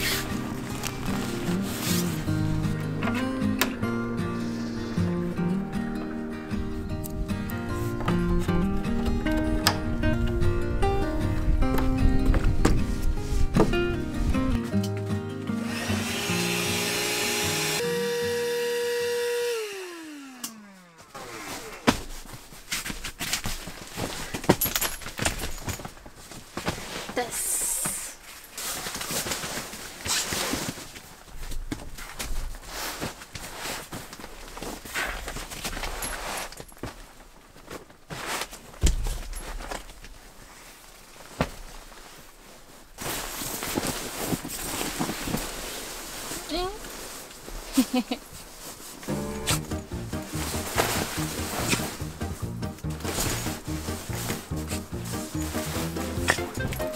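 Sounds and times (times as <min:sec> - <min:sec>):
footsteps: 0:00.0 - 0:03.4, 0:11.3 - 0:15.1, 0:20.5 - 0:56.9
rustling: 0:00.0 - 0:03.6, 0:04.3 - 0:14.8, 0:20.5 - 0:56.9
electric air pump whining: 0:15.6 - 0:22.2, 0:49.1 - 0:56.4
handling clicks and knocks: 0:21.8 - 0:26.7, 0:50.7 - 0:56.9.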